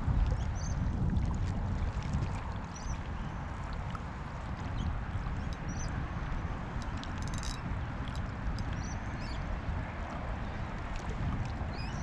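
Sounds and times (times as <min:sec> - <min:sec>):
wind buffeting microphone: 0:00.0 - 0:12.0
rattle of fine clicks: 0:06.8 - 0:07.6.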